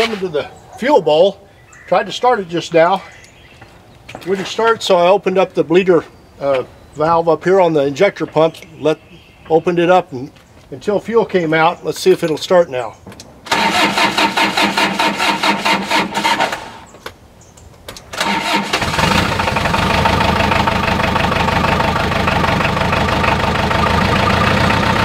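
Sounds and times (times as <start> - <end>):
diesel tractor engine running: 13.5 - 16.8, 18.2 - 25.0
tractor starter cranking: 13.5 - 16.9, 18.1 - 25.0.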